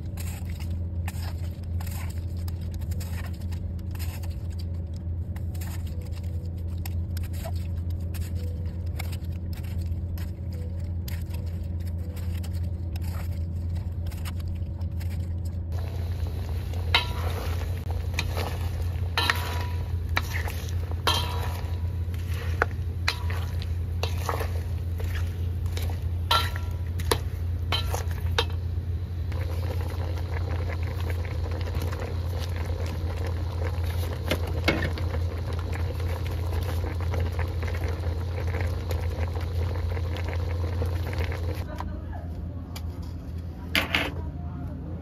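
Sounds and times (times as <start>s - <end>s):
low hum: 0.0s - 45.0s
food simmering: 15.7s - 41.7s
spatula scraping a pot: 16.9s - 28.5s.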